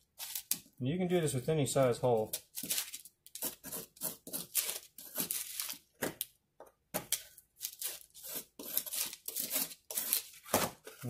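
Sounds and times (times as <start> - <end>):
knife scraping drywall: 2.6 - 5.8, 7.6 - 11.0.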